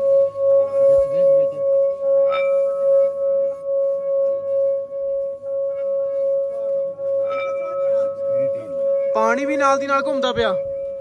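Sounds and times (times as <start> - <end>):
singing bowl steady tone: 0.0 - 11.0
mallet clinking on bowl rim: 0.7 - 3.6, 6.5 - 11.0.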